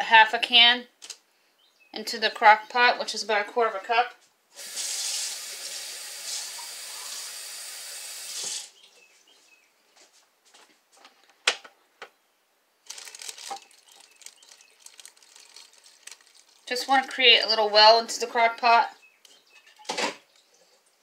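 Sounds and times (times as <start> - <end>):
tap water running into can: 4.6 - 8.7.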